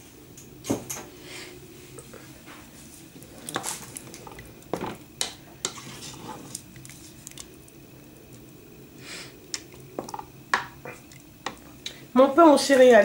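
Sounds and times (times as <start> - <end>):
low steady hum: 0.0 - 13.0
spoon scraping a pot: 5.6 - 7.0.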